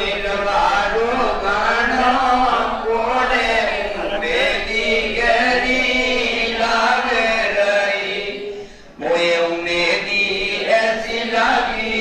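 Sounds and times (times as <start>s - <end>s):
voices chanting: 0.0s - 12.0s.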